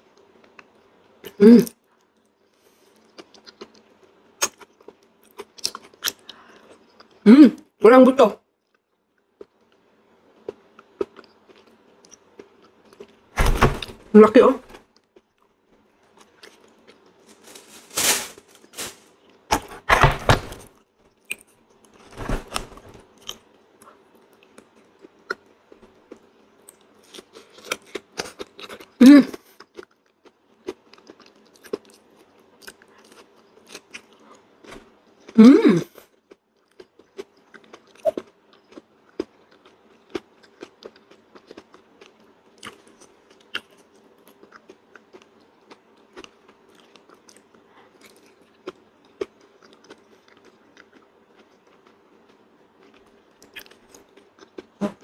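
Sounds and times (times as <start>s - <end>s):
wet chewing and smacking: 2.0s - 7.2s, 8.6s - 13.2s, 22.8s - 35.3s, 36.1s - 55.0s.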